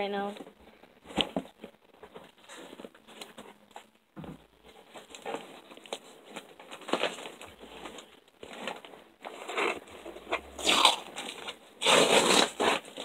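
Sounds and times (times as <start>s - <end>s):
scissors scraping cardboard: 11.4s - 13.0s.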